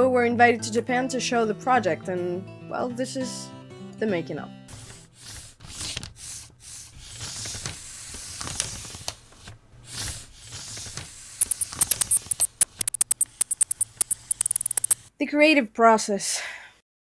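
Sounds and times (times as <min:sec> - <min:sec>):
high glitchy ticks: 0:11.4 - 0:15.0
sharp electronic clicks: 0:11.4 - 0:15.1.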